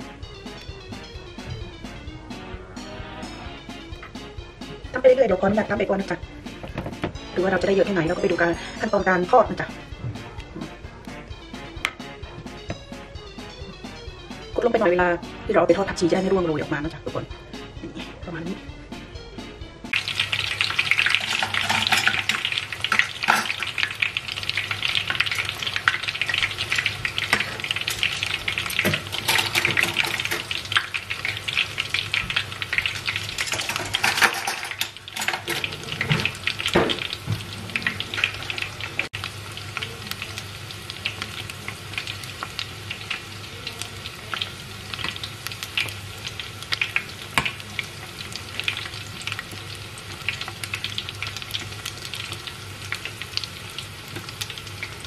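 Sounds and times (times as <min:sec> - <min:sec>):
food deep-frying in oil: 0:19.9 - 0:55.0.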